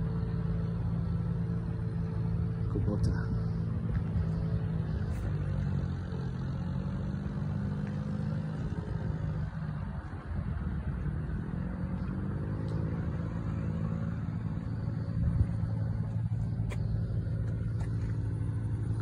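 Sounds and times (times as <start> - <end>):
tractor diesel engine idling: 0.0 - 7.4, 13.4 - 19.0.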